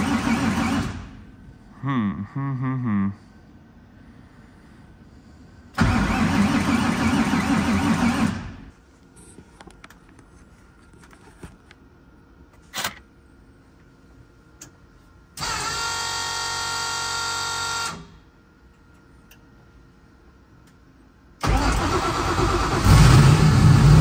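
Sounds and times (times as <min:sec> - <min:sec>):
electric whine of starter spinning: 0:00.0 - 0:01.3, 0:05.7 - 0:08.7, 0:21.4 - 0:24.0
car engine cranking: 0:05.8 - 0:08.5, 0:21.4 - 0:24.0.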